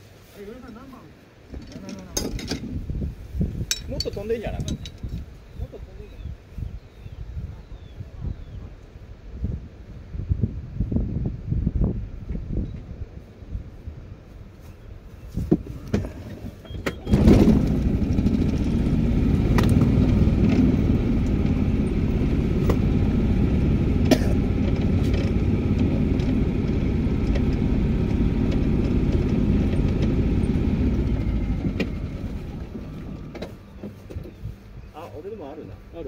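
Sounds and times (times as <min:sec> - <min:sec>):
golf cart rumbling: 0:15.5 - 0:36.0.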